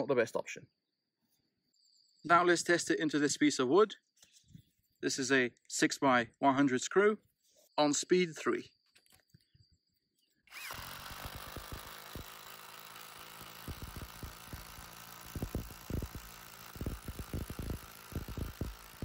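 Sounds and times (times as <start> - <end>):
impact driver motor running: 10.5 - 19.0
impact driver hammering: 10.8 - 19.0.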